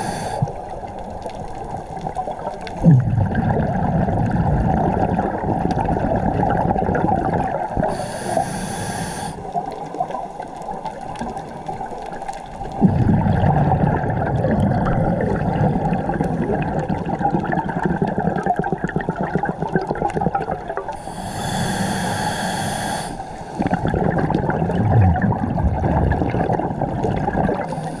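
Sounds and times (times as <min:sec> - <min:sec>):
regulator inhale hiss: 0:00.0 - 0:00.6, 0:07.8 - 0:09.6, 0:21.0 - 0:23.8, 0:27.7 - 0:28.0
exhaled bubbles rumbling: 0:00.0 - 0:08.2, 0:09.5 - 0:22.0, 0:23.5 - 0:28.0
watery background: 0:00.0 - 0:28.0.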